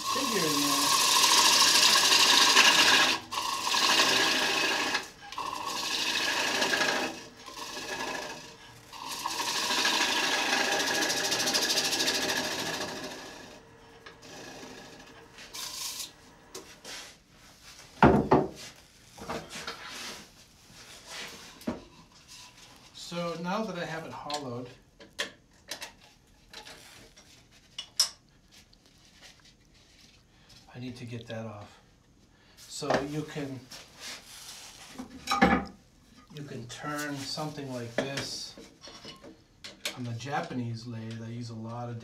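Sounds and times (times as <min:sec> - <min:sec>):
electric lathe running: 0:00.0 - 0:16.1
gouge cutting wood on lathe: 0:00.0 - 0:16.1.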